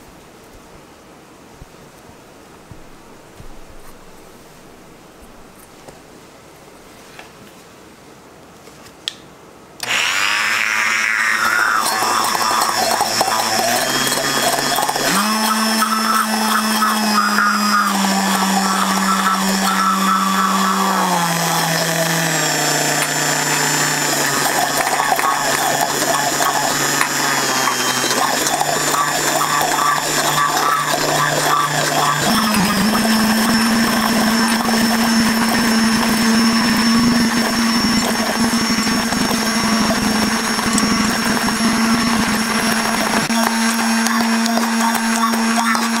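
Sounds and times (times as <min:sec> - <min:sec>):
immersion blender running: 0:09.8 - 0:46.0.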